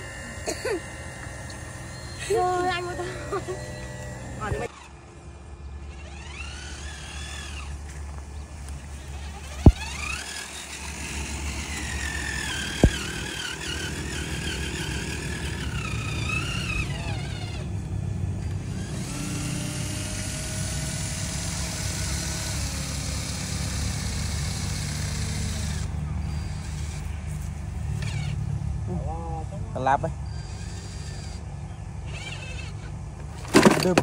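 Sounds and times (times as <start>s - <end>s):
electric toy motor whining: 0.0s - 5.0s, 5.8s - 28.5s, 30.2s - 33.8s
steady low hum: 0.0s - 33.8s
steady motor tone: 0.0s - 34.0s.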